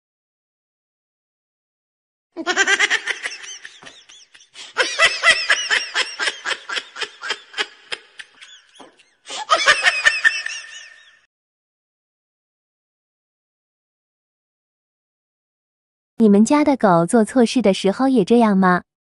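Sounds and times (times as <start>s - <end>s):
person laughing hard: 2.4s - 11.2s.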